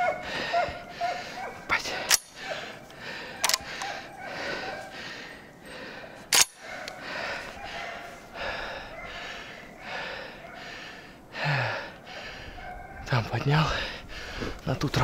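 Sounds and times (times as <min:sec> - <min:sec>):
sharp clicks: 0:02.0 - 0:04.0, 0:06.3 - 0:07.0.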